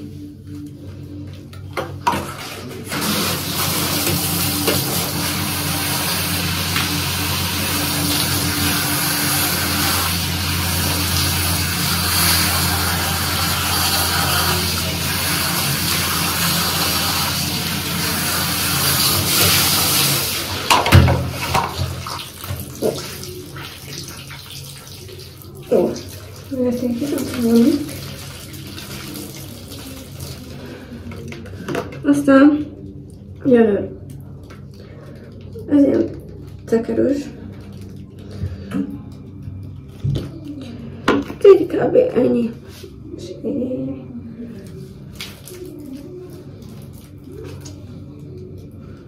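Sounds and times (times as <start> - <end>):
shower spraying water on hair: 2.4 - 30.7.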